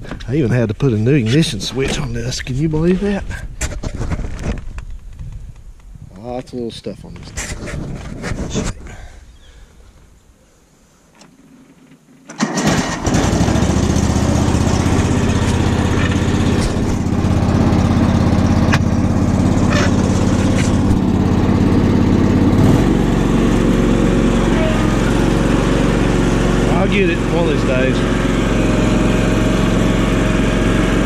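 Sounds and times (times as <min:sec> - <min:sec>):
lawn tractor engine running: 0:12.3 - 0:31.0.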